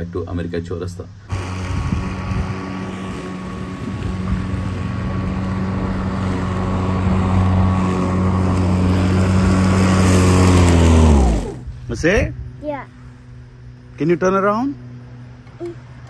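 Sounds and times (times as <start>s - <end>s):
lawn mower motor humming: 1.2s - 11.8s.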